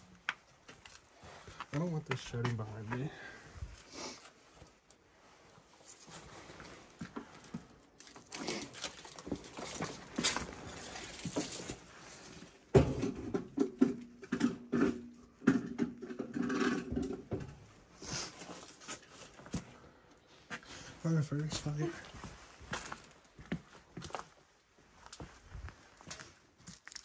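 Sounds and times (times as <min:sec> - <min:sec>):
footsteps on debris: 0:00.2 - 0:03.9, 0:05.7 - 0:12.4, 0:18.2 - 0:19.8, 0:21.4 - 0:27.0.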